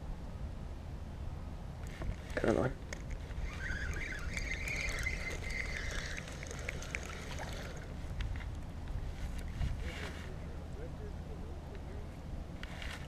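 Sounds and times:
wind rumble on microphone: 0.0s - 13.0s
fishing reel whirring: 3.0s - 7.9s.

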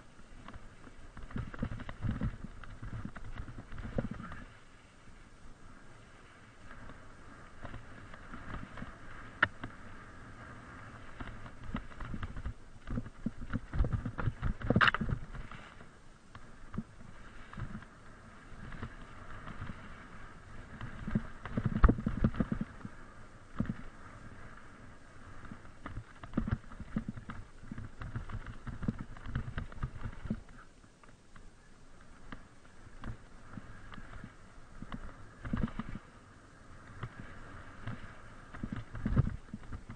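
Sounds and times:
bike rattling over bumps: 0.0s - 4.4s, 10.8s - 15.6s, 20.7s - 22.9s, 25.4s - 30.6s
bike tyres rolling on dirt: 0.0s - 39.9s.

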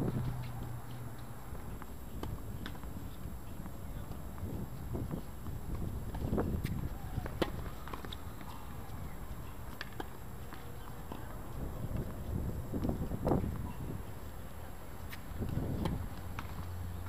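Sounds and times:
wind rumble on microphone: 0.0s - 17.0s
ball bouncing: 5.7s - 8.6s
racket striking ball: 6.6s - 8.5s, 9.6s - 10.2s.

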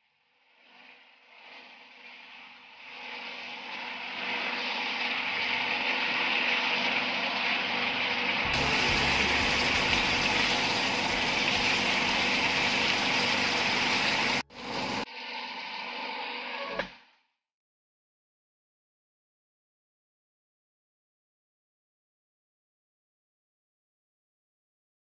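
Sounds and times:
food sizzling and bubbling in pan: 0.1s - 15.8s
spatula stirring: 0.3s - 15.1s.

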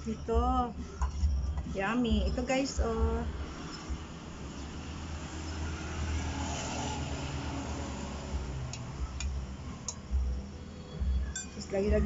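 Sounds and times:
metal spoon clicking against pot: 8.7s - 10.1s.

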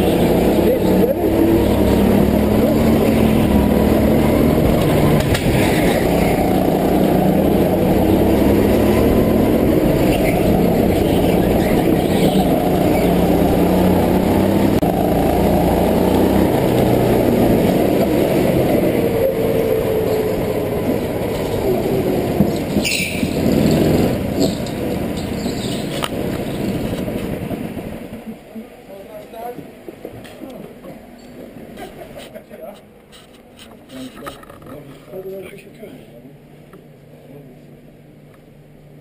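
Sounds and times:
go-kart engine running: 0.0s - 28.4s.

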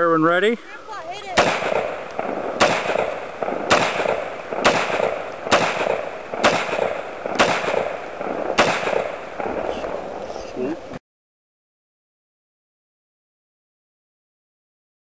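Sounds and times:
rifle shots with echo: 1.3s - 10.4s.

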